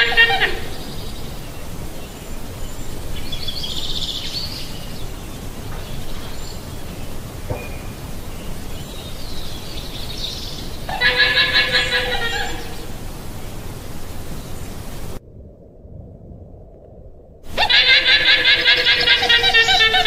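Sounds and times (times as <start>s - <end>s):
llama calls: 0.0s - 0.8s, 10.8s - 12.9s, 17.5s - 20.0s
steady background hiss: 0.0s - 15.2s, 17.5s - 20.0s.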